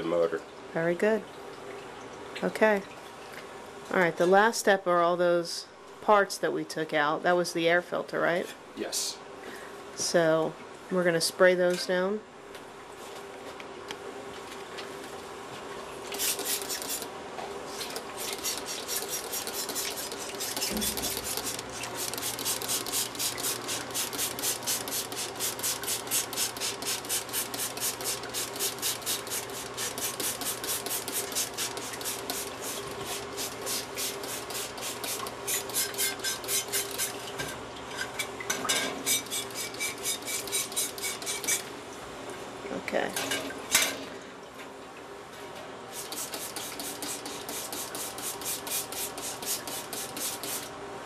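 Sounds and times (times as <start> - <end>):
spray bottle squirting: 16.1 - 17.1, 17.8 - 37.2, 46.0 - 50.7.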